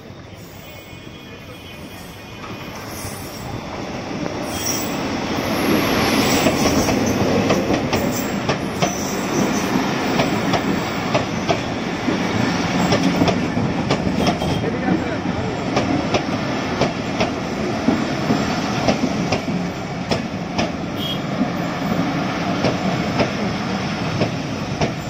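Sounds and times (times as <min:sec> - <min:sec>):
train passing: 0:00.0 - 0:25.0.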